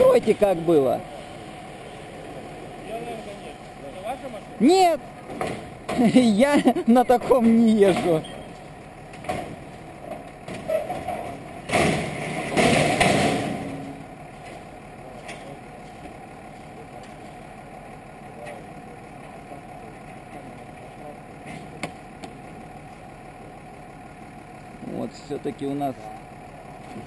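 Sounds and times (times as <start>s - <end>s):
vehicle engine idling: 0.0s - 27.0s.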